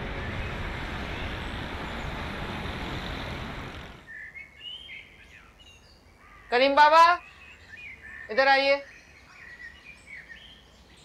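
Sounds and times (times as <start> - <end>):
city road traffic: 0.0 - 4.1
faint bird chirps: 4.0 - 6.6, 7.2 - 11.0.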